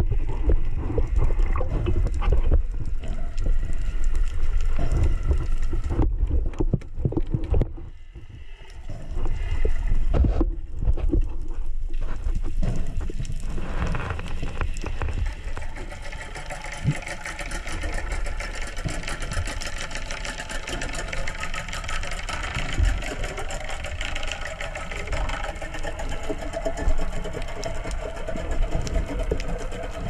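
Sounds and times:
muffled underwater rush: 0.0 - 30.0.

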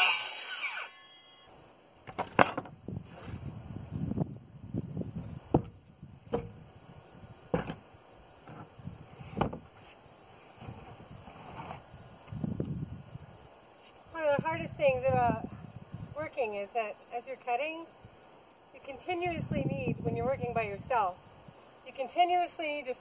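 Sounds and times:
power saw winding down: 0.0 - 1.2
lumber shuffling: 7.5 - 12.4.

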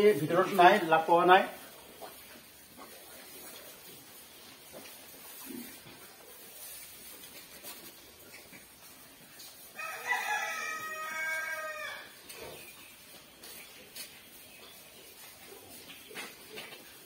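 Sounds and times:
rooster crowing: 9.8 - 12.1.

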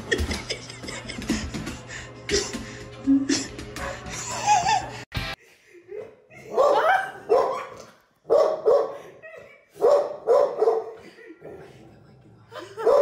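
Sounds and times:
dog barking: 6.0 - 9.1, 9.8 - 11.0, 12.8 - 13.0.

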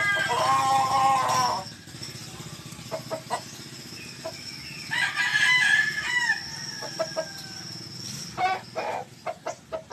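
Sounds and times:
rooster clucking: 0.0 - 1.8, 2.9 - 9.9
rooster crowing: 0.0 - 1.8, 4.8 - 9.1.

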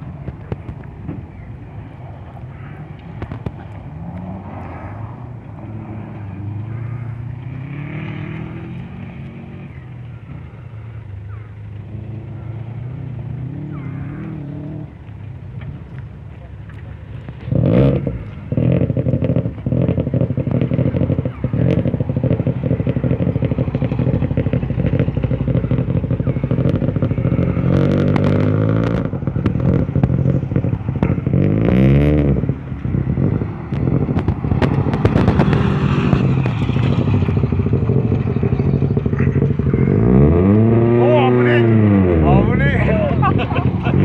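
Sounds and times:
rally car engine revving hard: 3.3 - 9.8, 17.4 - 44.0
gravel clattering under car: 5.4 - 44.0.

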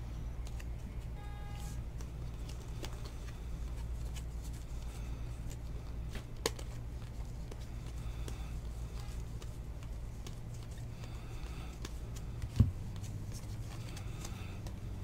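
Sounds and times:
steady low hum: 0.0 - 15.0
trading cards sliding and rustling: 0.4 - 15.0.

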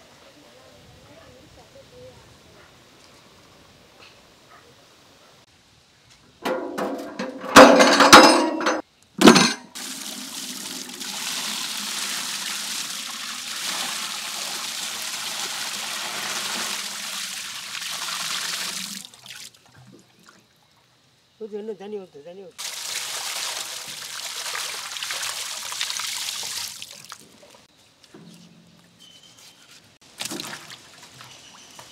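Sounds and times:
water splashing in metal basin: 6.5 - 20.4, 22.6 - 27.5, 30.0 - 31.9
water pouring: 9.7 - 20.1, 22.6 - 27.6.

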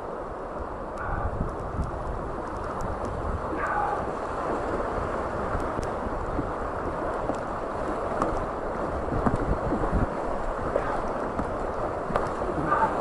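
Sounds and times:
water slapping rubber raft: 0.0 - 13.0
whitewater roaring: 0.0 - 13.0
knocks and splashes: 3.0 - 13.0.

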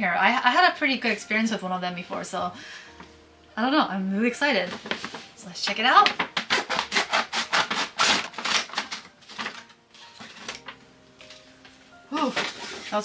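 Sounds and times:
scissors snipping packaging: 6.0 - 10.8.

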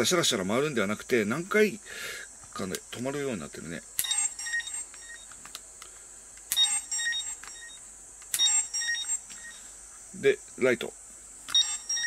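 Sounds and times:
high electronic beeps: 4.0 - 5.3, 6.5 - 7.8, 8.4 - 9.7, 11.5 - 12.0
toy dial click: 4.0 - 5.4, 6.4 - 9.5.

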